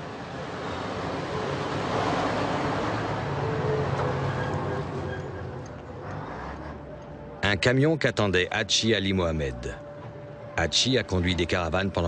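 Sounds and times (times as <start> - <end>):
diesel lorry driving past: 0.0 - 7.4.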